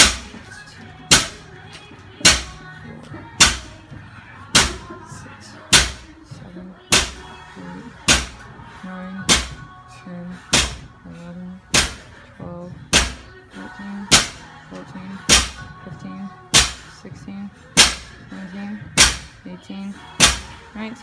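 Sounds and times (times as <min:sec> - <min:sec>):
barbell thudding on concrete: 0:05.7 - 0:06.1, 0:08.0 - 0:08.4, 0:09.2 - 0:09.6, 0:10.5 - 0:10.9, 0:11.7 - 0:12.2, 0:12.9 - 0:13.3, 0:14.1 - 0:14.4, 0:15.3 - 0:15.6, 0:16.6 - 0:16.9, 0:17.8 - 0:18.1, 0:19.0 - 0:19.4.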